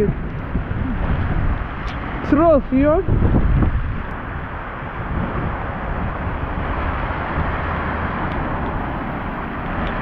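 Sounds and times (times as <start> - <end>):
rain: 0.0 - 10.0
car tyres hissing on wet asphalt: 0.4 - 10.0.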